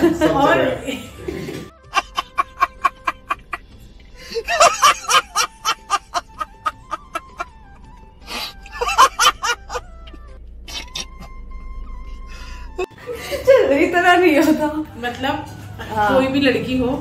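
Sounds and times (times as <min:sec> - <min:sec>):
man laughing hard: 0:01.9 - 0:03.6, 0:04.3 - 0:07.5, 0:08.7 - 0:09.8.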